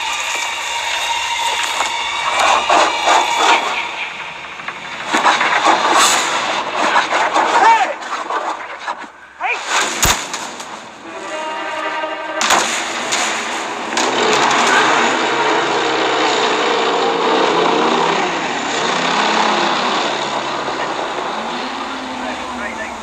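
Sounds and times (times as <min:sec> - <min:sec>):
vehicle engine running: 0:00.0 - 0:07.8, 0:12.7 - 0:23.0
sharp bang: 0:09.5 - 0:15.5.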